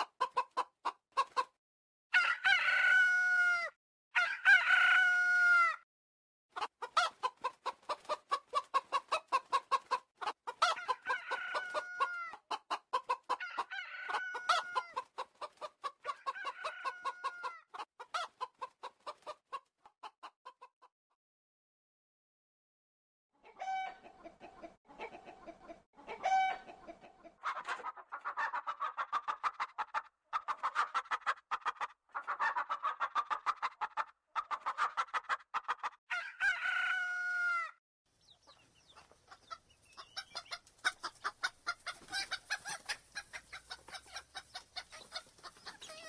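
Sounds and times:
chickens clucking: 0.0s - 1.6s, 6.5s - 20.8s, 23.4s - 36.6s, 38.2s - 46.0s
chicken long drawn-out calls: 2.1s - 5.8s, 6.6s - 18.5s, 23.4s - 37.8s, 39.3s - 46.0s.

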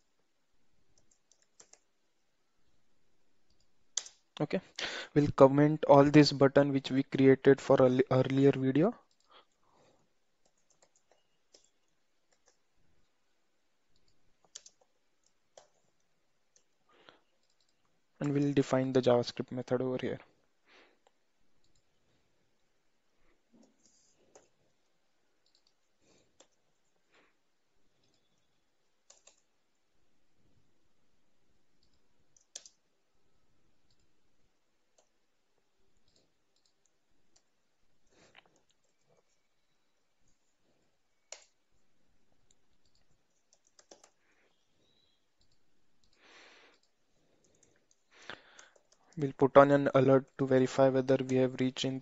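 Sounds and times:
computer keyboard and mouse clicks: 0.9s - 1.9s, 3.4s - 4.4s, 9.0s - 9.6s, 10.4s - 12.7s, 13.9s - 18.6s, 23.5s - 24.8s, 25.4s - 27.0s, 27.9s - 29.8s, 31.8s - 32.9s, 36.0s - 40.4s, 41.2s - 41.8s, 42.4s - 49.4s.

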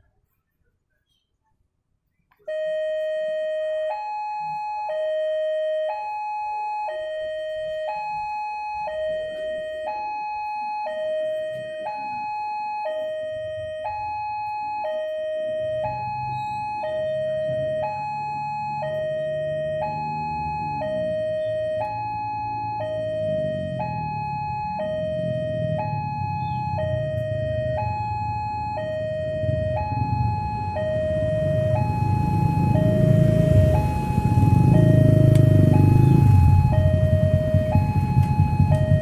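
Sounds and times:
level crossing alarm two-tone: 2.5s - 39.0s
low rumble: 29.2s - 39.0s.

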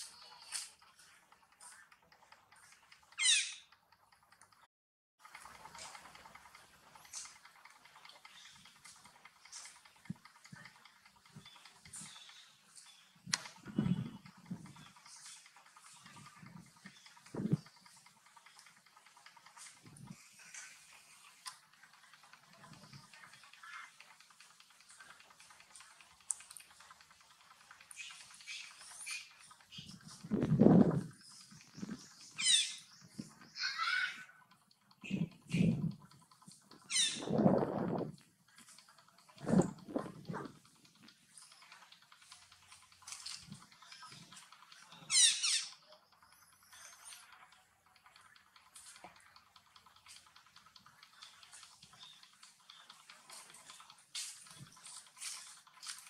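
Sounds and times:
monkey high-pitched squeak: 3.2s - 3.7s, 32.4s - 32.8s, 33.6s - 34.4s, 36.9s - 37.3s, 45.1s - 45.8s.

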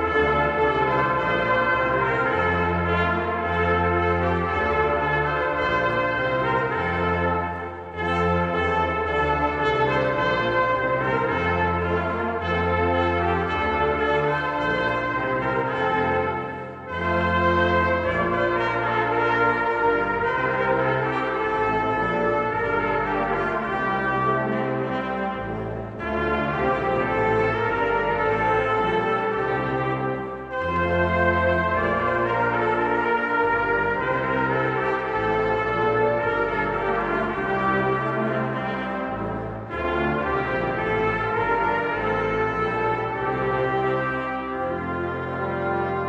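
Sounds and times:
brass choir playing: 0.0s - 46.0s.

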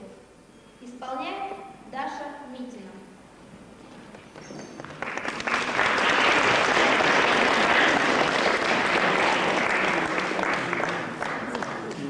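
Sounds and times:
audience applause: 4.8s - 12.0s.

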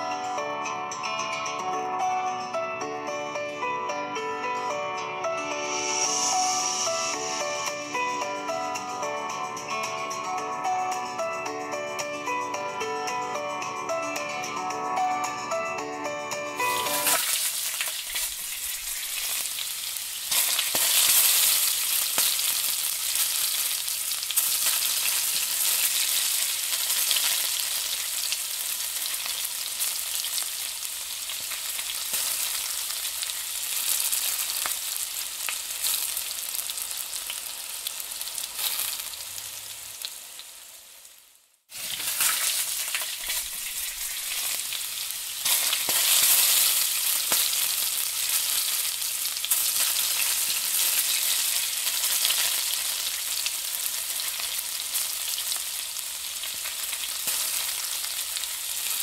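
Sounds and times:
onions sizzling in hot oil: 16.7s - 59.0s.

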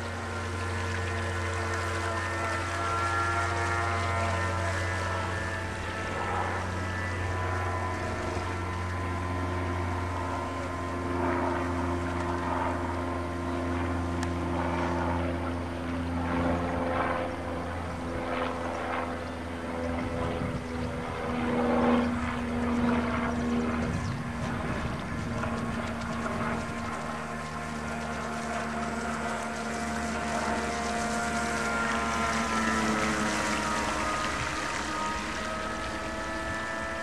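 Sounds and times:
hull splashing through water: 0.0s - 13.2s, 24.4s - 37.0s
model boat motor buzzing: 0.0s - 37.0s.

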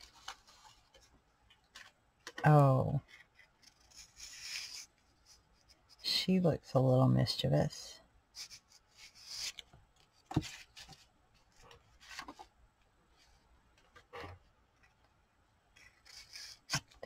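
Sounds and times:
paper rustling: 0.0s - 2.0s, 8.4s - 12.5s.

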